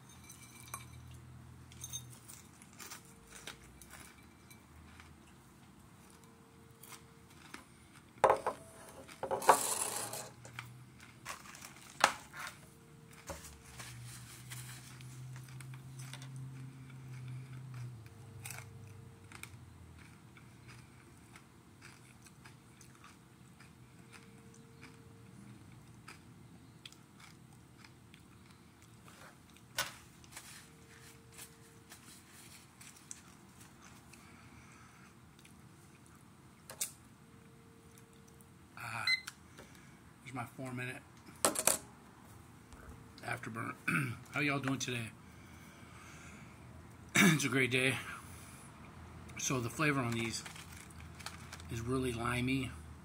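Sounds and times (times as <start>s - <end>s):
low steady hum: 0.0s - 53.0s
chewing crunchy snack: 2.2s - 8.2s, 10.4s - 36.2s, 50.0s - 51.7s
plastic crackle: 11.2s - 12.6s, 50.1s - 51.8s.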